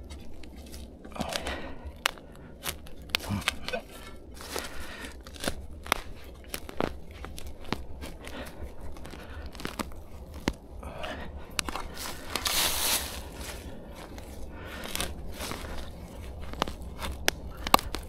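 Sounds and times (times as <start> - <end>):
dry leaves crinkling: 0.0 - 18.0
spade crunching into soil: 11.6 - 18.0.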